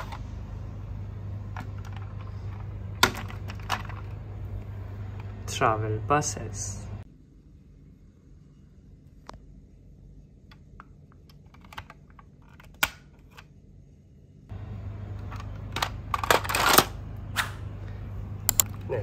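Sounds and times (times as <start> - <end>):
low steady hum: 0.0 - 19.0
toy vehicles clattering: 1.5 - 4.2, 15.2 - 17.0.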